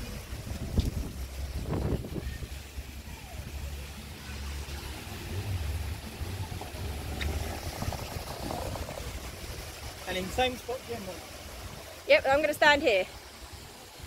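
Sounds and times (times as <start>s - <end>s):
wind buffeting microphone: 0.1s - 3.6s, 5.1s - 12.7s.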